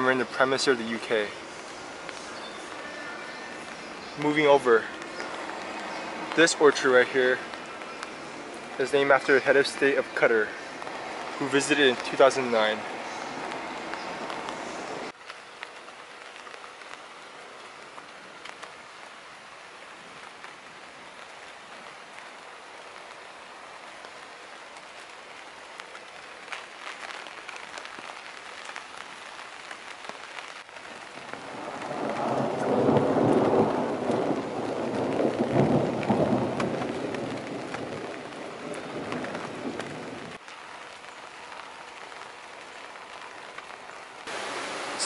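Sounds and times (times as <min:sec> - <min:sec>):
raindrop ticks: 0:00.0 - 0:44.4
steady rain falling: 0:00.0 - 0:45.0.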